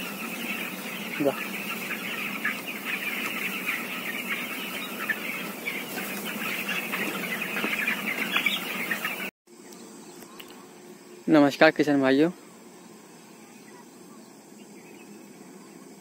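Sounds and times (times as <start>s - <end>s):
chicks peeping: 0.0s - 10.6s.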